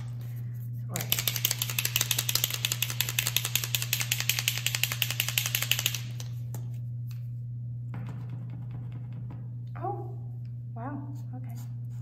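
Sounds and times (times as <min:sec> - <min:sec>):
ball rattling in shaken marker: 0:00.0 - 0:07.3.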